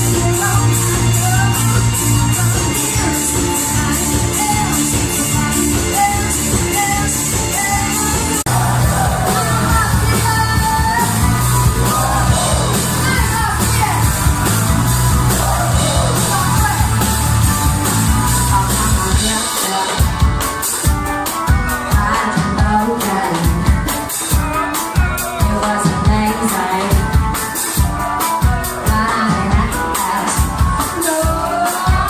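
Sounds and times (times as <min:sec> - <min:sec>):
person singing: 0:00.0 - 0:14.4, 0:15.1 - 0:32.0
rock dance band playing: 0:00.0 - 0:32.0.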